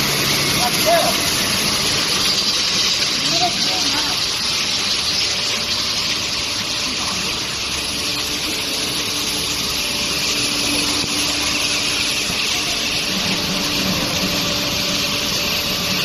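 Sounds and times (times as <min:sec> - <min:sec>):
rushing hissing machinery: 0:00.0 - 0:16.0
thin high whine: 0:05.2 - 0:16.0.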